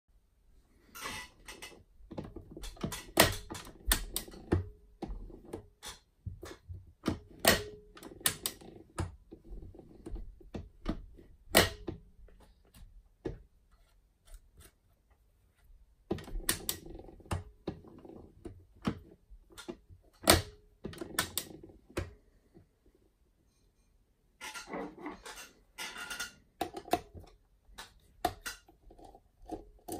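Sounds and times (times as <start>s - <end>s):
sharp metal clicks and clunks: 0.9s - 9.3s, 24.4s - 29.9s.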